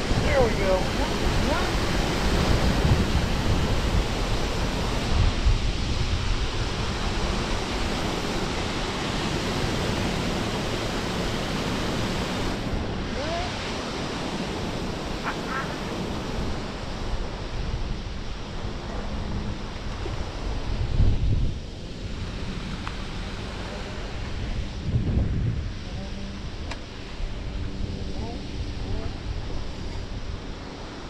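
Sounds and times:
water gushing and churning: 0.0 - 17.6.

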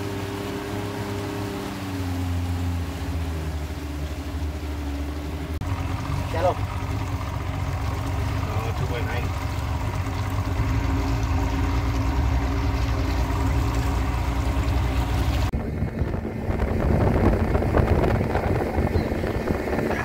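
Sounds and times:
boat motor running: 0.0 - 20.0
water splashing: 0.0 - 20.0
wind on microphone: 14.9 - 20.0.

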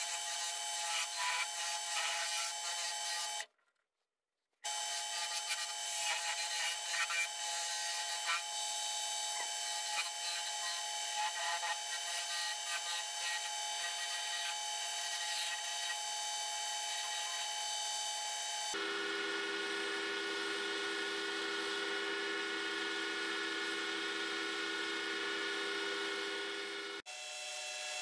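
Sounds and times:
lathe motor whining: 16.6 - 28.0.

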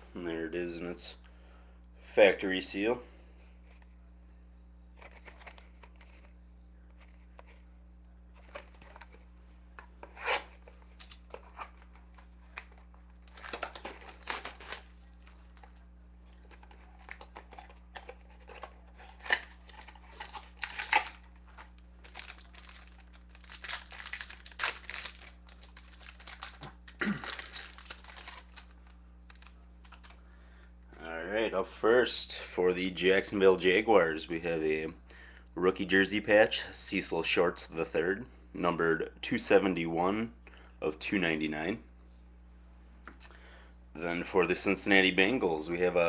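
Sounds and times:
low electrical hum: 0.0 - 46.0
shrink wrap tearing and crinkling: 10.0 - 30.2.

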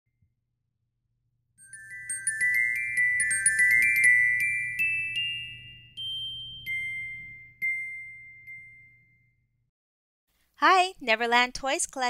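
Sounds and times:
glockenspiel-style bell notes: 1.6 - 9.4.

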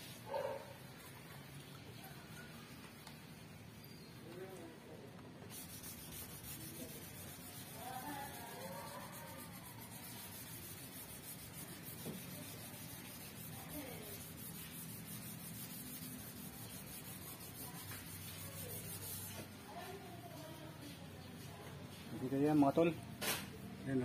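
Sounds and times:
sanding block rubbing on metal: 5.5 - 19.5.

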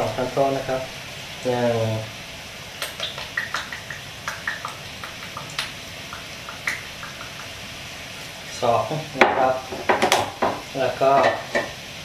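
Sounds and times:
liquid simmering with pops: 2.7 - 7.9, 9.2 - 11.8.

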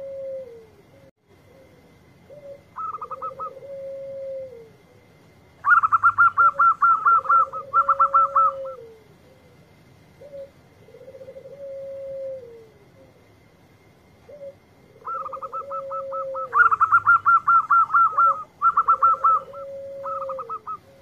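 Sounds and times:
dove cooing: 0.0 - 21.0
rapid high chirping: 5.6 - 8.8, 15.0 - 21.0.

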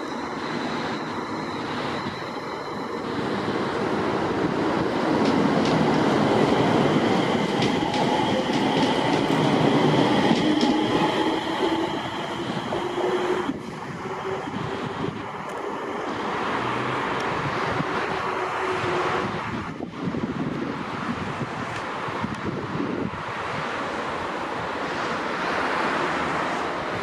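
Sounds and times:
train motor whine: 0.0 - 16.5
train wheels rumbling and clicking: 0.0 - 20.7.

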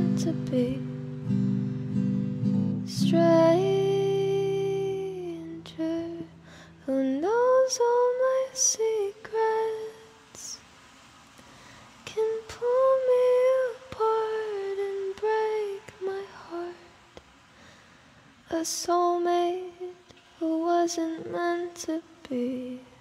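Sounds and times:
woman singing: 0.0 - 1.1, 2.8 - 10.6, 12.0 - 17.0, 18.5 - 23.0
guitar chord: 0.0 - 6.5.

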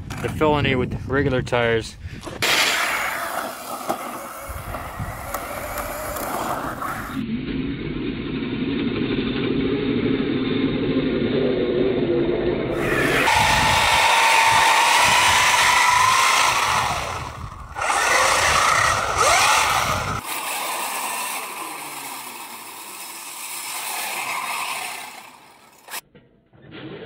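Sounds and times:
electric toy truck motor whining: 2.5 - 7.2, 12.7 - 26.0.

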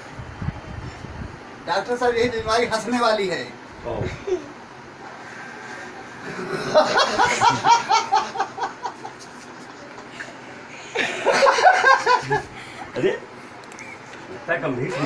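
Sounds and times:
man laughing: 6.2 - 9.2.

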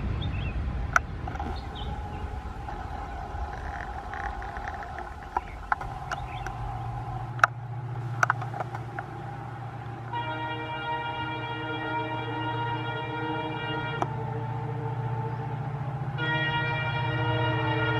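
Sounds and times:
diesel locomotive engine drone: 0.0 - 17.9
sharp clicks: 2.6 - 7.6, 8.2 - 9.1.

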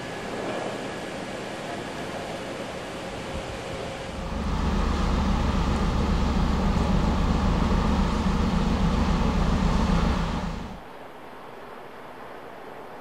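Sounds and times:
ship diesel engine rumbling: 4.1 - 10.8.

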